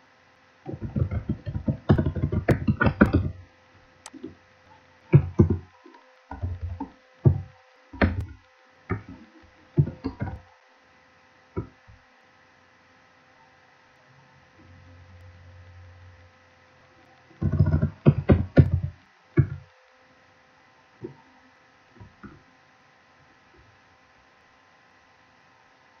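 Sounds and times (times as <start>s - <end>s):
faint steady hum: 0.0s - 26.0s
keyboard typing: 0.7s - 3.4s, 5.1s - 10.4s, 17.3s - 19.7s.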